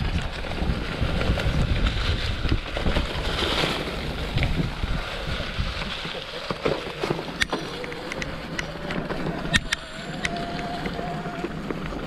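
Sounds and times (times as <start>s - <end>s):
wind buffeting microphone: 0.0s - 6.2s
bike clicks and rattles: 0.0s - 12.0s
tyres rolling through leaves: 0.0s - 12.0s.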